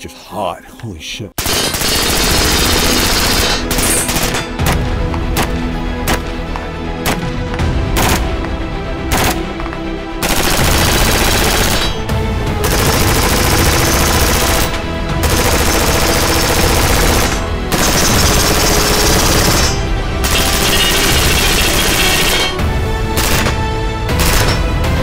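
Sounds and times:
background music: 0:00.0 - 0:25.0
rifle rapid fire: 0:01.4 - 0:04.5, 0:09.1 - 0:09.5, 0:10.2 - 0:12.0, 0:12.6 - 0:22.6, 0:23.2 - 0:24.6.

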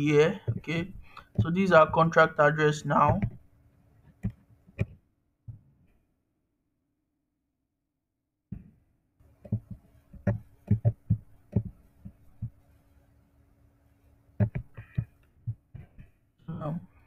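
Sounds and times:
keyboard and mouse clicks: 0:04.2 - 0:05.0, 0:09.4 - 0:12.5, 0:14.4 - 0:16.1
faint steady hum: 0:08.6 - 0:17.0.

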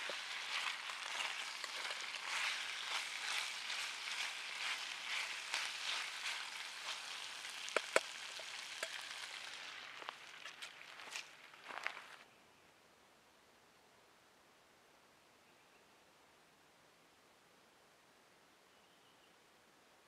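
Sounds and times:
pasta sizzling in a frying pan: 0:00.0 - 0:12.2.

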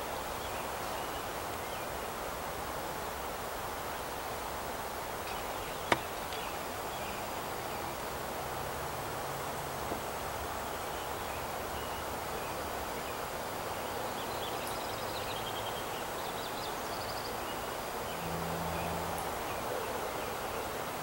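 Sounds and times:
steady background hiss: 0:00.0 - 0:21.0
small birds chirping: 0:05.0 - 0:08.3, 0:10.6 - 0:20.7.

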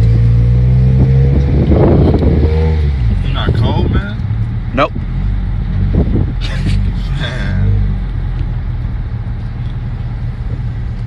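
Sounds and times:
car engine running: 0:00.0 - 0:11.0.

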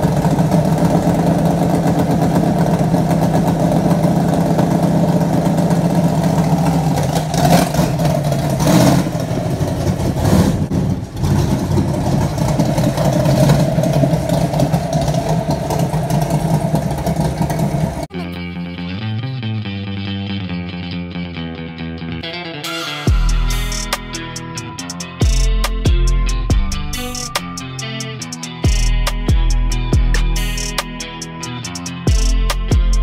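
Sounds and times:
race car engine revving: 0:00.0 - 0:18.1
music: 0:18.1 - 0:33.0.

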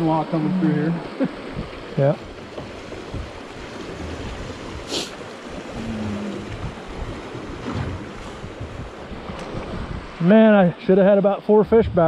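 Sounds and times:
river water rushing: 0:00.0 - 0:11.0
wind buffeting microphone: 0:01.0 - 0:10.7, 0:11.5 - 0:12.0.

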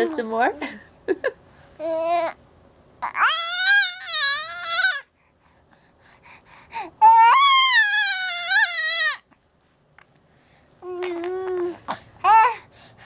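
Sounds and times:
baby crying: 0:03.0 - 0:05.1, 0:07.0 - 0:09.2, 0:11.4 - 0:12.6.

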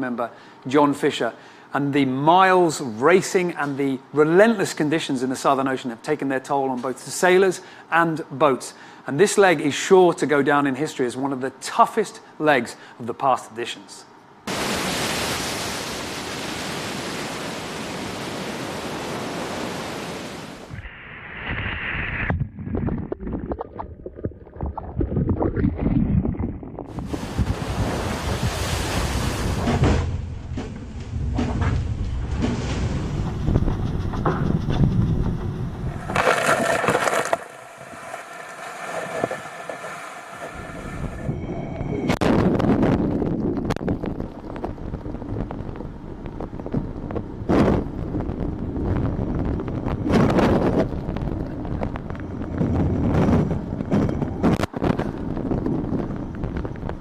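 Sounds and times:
sea rushing past yacht: 0:14.5 - 0:20.8, 0:26.9 - 0:30.3, 0:35.9 - 0:42.3
wind buffeting microphone: 0:22.3 - 0:36.8, 0:38.8 - 0:57.0
wave breaking over deck: 0:26.1 - 0:41.3.

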